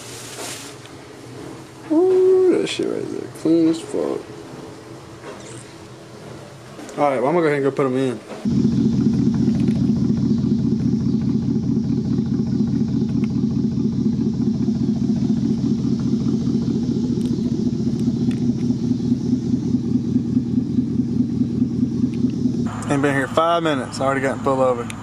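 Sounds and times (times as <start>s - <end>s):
truck engine idling: 8.2s - 25.0s.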